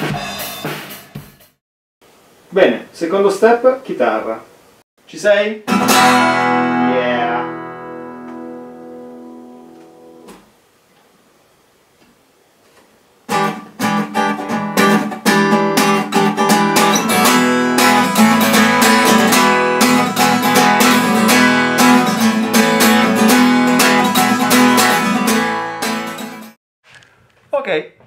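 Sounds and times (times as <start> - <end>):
acoustic guitar strumming: 5.7 - 10.4, 13.3 - 26.6.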